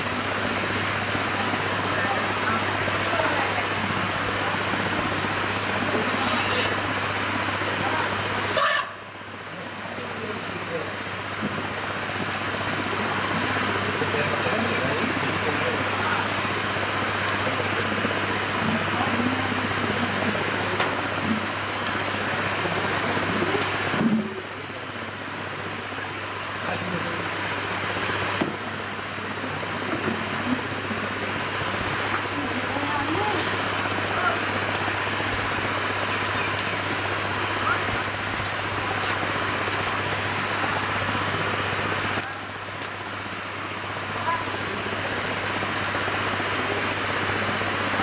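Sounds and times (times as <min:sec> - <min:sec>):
river rushing over rocks: 0:00.0 - 0:48.0.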